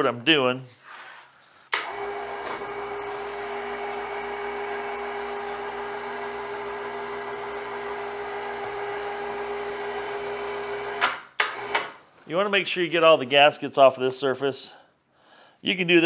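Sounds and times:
machine hum: 0:01.8 - 0:11.0.

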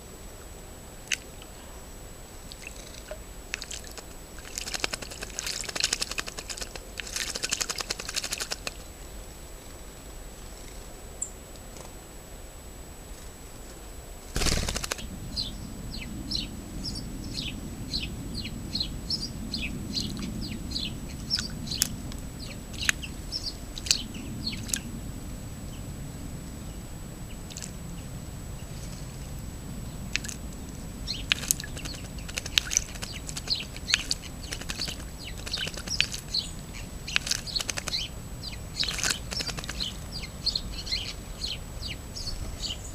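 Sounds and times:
faint high whine: 0:00.0 - 0:42.9
bird splashing in water: 0:02.5 - 0:08.9, 0:14.4 - 0:15.1, 0:31.1 - 0:38.1, 0:38.8 - 0:40.0.

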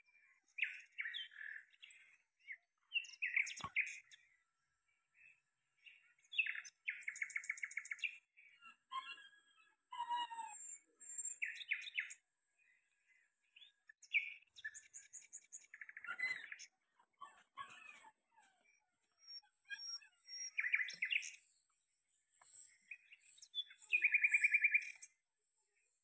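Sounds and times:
thin high-pitched bird calls: 0:00.0 - 0:04.3, 0:05.9 - 0:12.2, 0:13.6 - 0:21.5, 0:22.5 - 0:25.2
songbird trills: 0:00.0 - 0:04.4, 0:05.2 - 0:21.7, 0:22.3 - 0:25.2.

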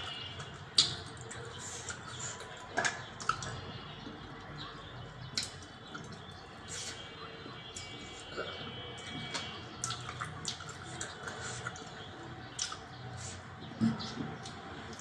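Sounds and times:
wet lip-smacking: 0:09.0 - 0:11.9, 0:12.5 - 0:15.0.

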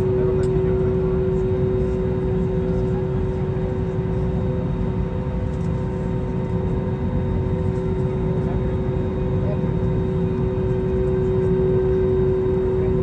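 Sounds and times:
airliner cabin rumble and hum: 0:00.0 - 0:13.0.

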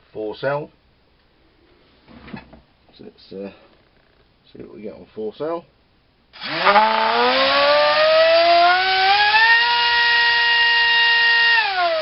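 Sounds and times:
drone motor whine: 0:06.4 - 0:12.0.

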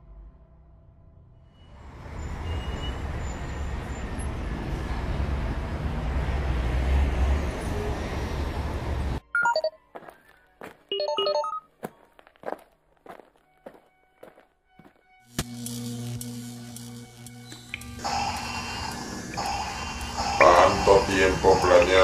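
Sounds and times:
electronic computer beeps: 0:09.3 - 0:09.8, 0:10.9 - 0:11.7.

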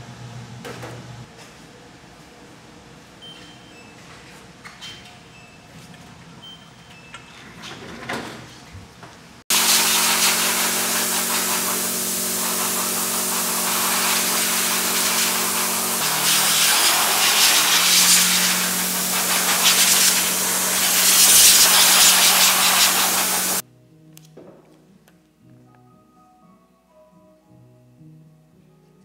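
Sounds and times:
machine hum: 0:09.5 - 0:23.6
spray nozzle hissing: 0:09.5 - 0:23.6.

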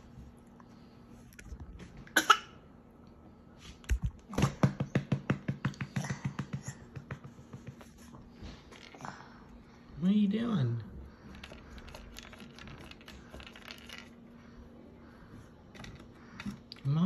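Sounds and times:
baby coughing: 0:02.1 - 0:02.6.

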